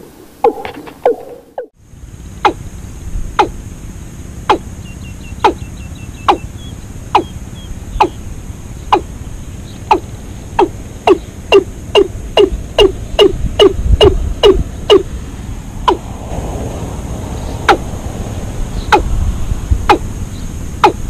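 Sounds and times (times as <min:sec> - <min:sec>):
low rumble of wind: 0:00.0 - 0:21.0
bird call with falling notes: 0:04.5 - 0:08.2.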